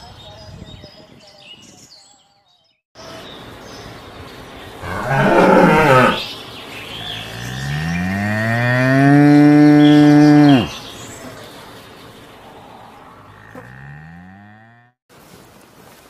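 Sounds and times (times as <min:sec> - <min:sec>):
cows mooing: 0:04.8 - 0:06.2, 0:07.0 - 0:10.8, 0:12.6 - 0:15.0.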